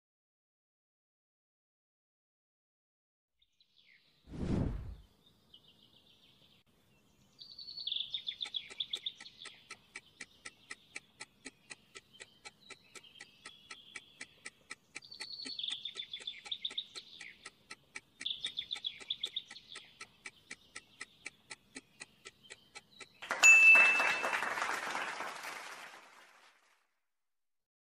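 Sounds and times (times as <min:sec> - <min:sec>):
birds chirping trills: 0:05.0 - 0:24.7
countdown timer ticking: 0:08.4 - 0:24.0.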